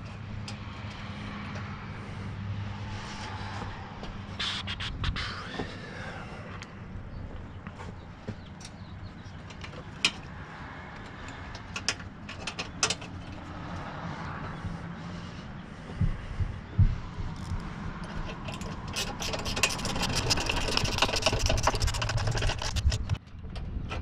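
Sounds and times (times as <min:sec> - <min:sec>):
wrench clicking rapidly: 0:18.3 - 0:23.2.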